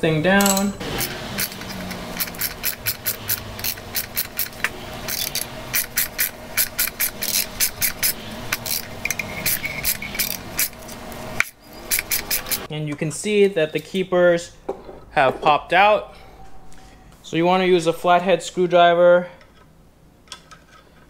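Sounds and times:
hand ratchet clicking: 0:00.4 - 0:10.8, 0:11.4 - 0:12.7.

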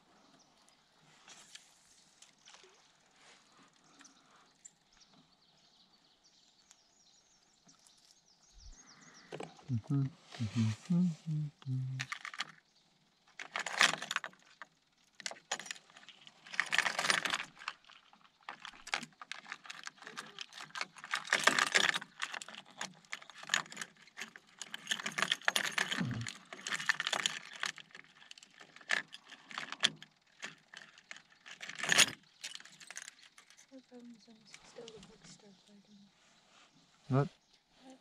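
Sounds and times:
metal fishing tackle jangling: 0:13.4 - 0:33.8.

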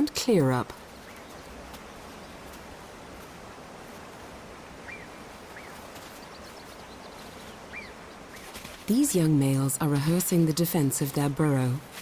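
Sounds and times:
steady outdoor hiss: 0:00.0 - 0:12.0
faint bird chirps: 0:04.8 - 0:08.6.

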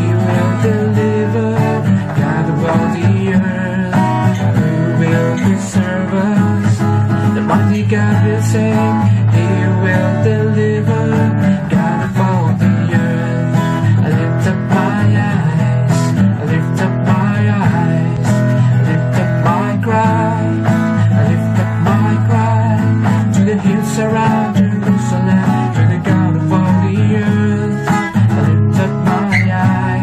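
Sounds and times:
worship music with acoustic guitar: 0:00.0 - 0:30.0.

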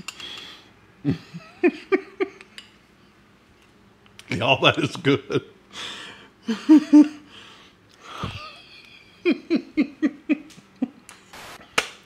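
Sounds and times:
man chuckling: 0:01.0 - 0:02.4, 0:06.4 - 0:07.3, 0:08.0 - 0:11.0.

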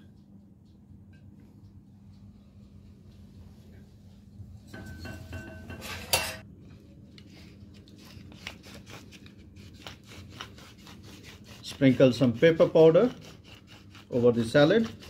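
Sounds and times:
ceramic dish clinking: 0:04.7 - 0:06.4.

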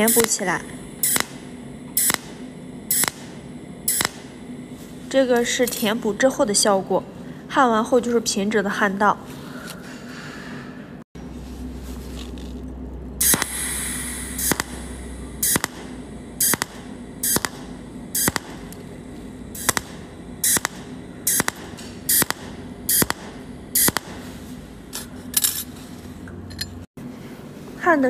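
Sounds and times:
short sharp welding zaps: 0:00.0 - 0:04.3, 0:13.2 - 0:25.7
welding arc hiss: 0:00.0 - 0:06.2, 0:13.2 - 0:25.7
low hum: 0:00.0 - 0:26.9.

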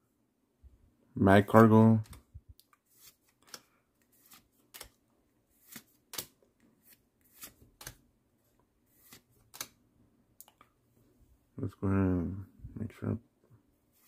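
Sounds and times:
cards flicking: 0:01.5 - 0:05.0, 0:05.6 - 0:08.0, 0:09.0 - 0:09.8.

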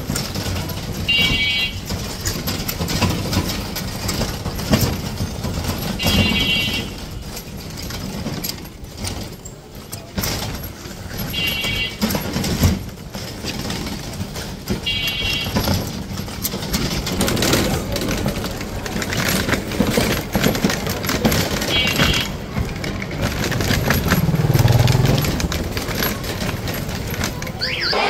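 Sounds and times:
knocks and rattles: 0:00.0 - 0:27.8
vehicle engine and road noise: 0:00.0 - 0:28.0
short high tones: 0:27.6 - 0:28.0.

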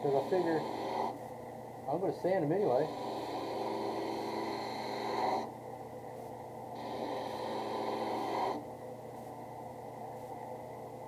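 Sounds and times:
drill press motor hum: 0:02.7 - 0:05.5, 0:06.8 - 0:08.7.

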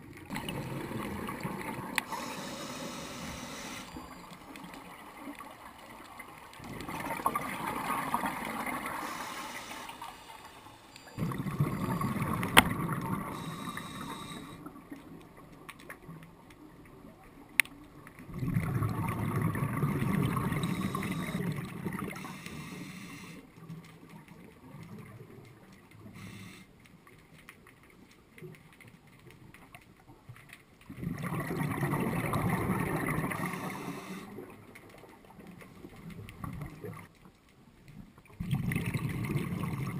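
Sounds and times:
bubbles gurgling underwater: 0:00.0 - 0:02.3, 0:06.6 - 0:09.2, 0:11.2 - 0:13.5, 0:18.2 - 0:22.2, 0:30.9 - 0:34.7, 0:38.4 - 0:39.9.

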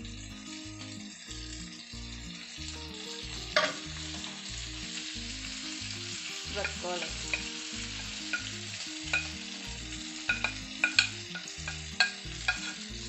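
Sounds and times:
vegetables sizzling in hot oil: 0:00.0 - 0:13.0
spatula clicking on plate and pan: 0:03.6 - 0:04.4, 0:06.1 - 0:12.9.

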